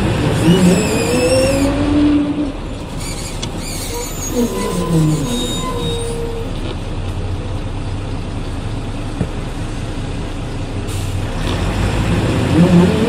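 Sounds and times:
diesel bus engine idling: 0:02.5 - 0:11.4.

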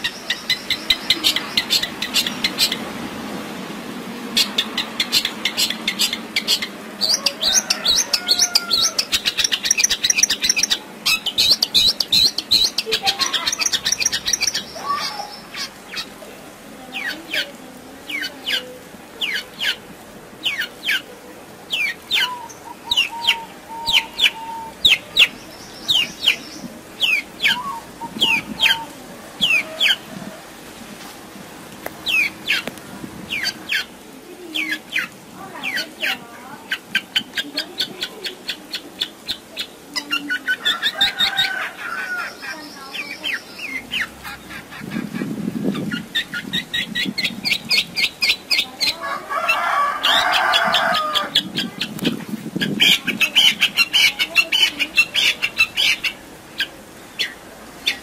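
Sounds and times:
shrike singing: 0:04.3 - 0:16.2, 0:21.7 - 0:30.1.

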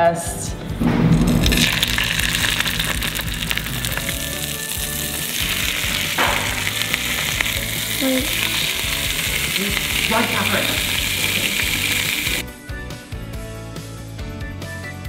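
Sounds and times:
fish sizzling in a skillet: 0:01.3 - 0:12.4.

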